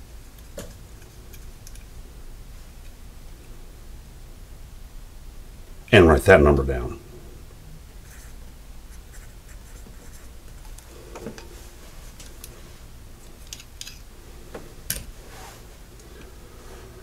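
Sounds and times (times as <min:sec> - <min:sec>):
pencil scratching on paper: 0:08.0 - 0:10.4
clicks of small parts handled: 0:13.4 - 0:14.0.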